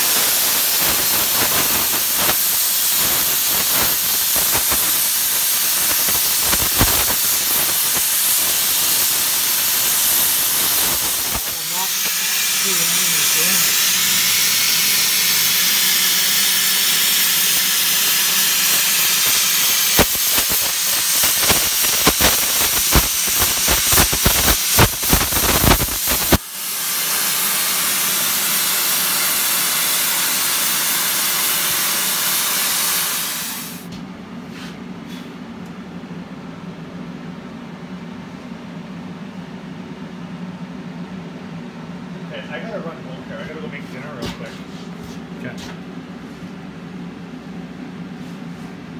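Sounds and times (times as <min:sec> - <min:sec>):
plasma cutter hissing and crackling: 0:00.0 - 0:33.9
steady air hiss: 0:00.0 - 0:33.9.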